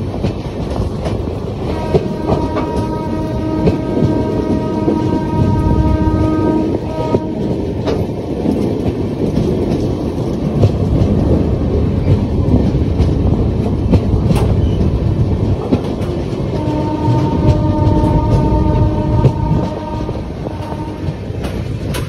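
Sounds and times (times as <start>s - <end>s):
sharp rail clacks: 0.0s - 22.0s
train wheels rumbling on rail: 0.0s - 22.0s
wind buffeting microphone: 0.0s - 22.0s
train horn: 1.6s - 7.7s, 16.5s - 21.4s.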